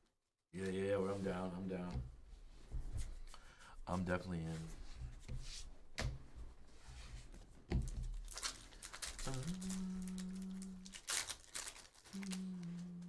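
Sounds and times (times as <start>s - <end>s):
wrapper crinkling: 8.0s - 13.0s
low hum: 9.3s - 11.0s.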